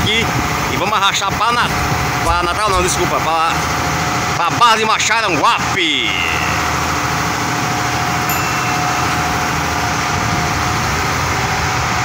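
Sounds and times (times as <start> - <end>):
boat engine droning: 0.0 - 12.0
wind: 0.0 - 12.0
sea noise: 6.5 - 12.0.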